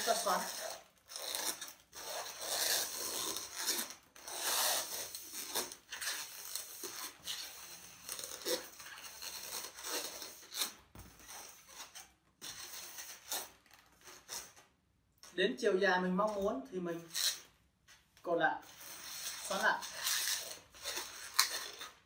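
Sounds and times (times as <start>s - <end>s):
balloons rubbing and squeaking: 0.0s - 15.4s, 16.2s - 17.6s, 18.4s - 22.0s.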